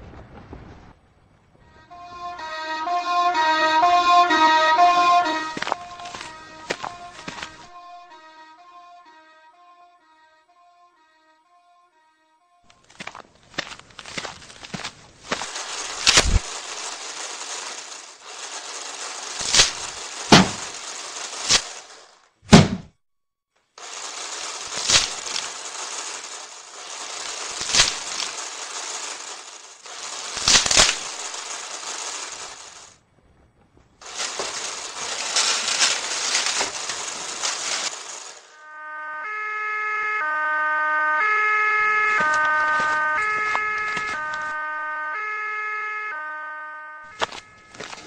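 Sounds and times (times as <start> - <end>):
steady hiss: 14.7 - 22.1, 23.8 - 32.9, 34.0 - 38.6
sharp knocks and cracks: 19.4 - 21.8, 22.5 - 23.0
low thump: 22.5 - 22.9.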